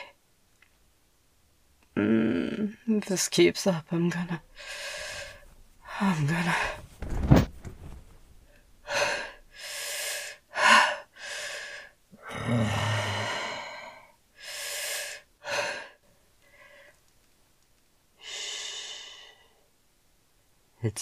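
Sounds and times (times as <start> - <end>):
woman moaning: 2.0 - 2.9, 12.2 - 14.0
woman gasping and breathing heavily: 4.3 - 7.0, 8.8 - 16.9.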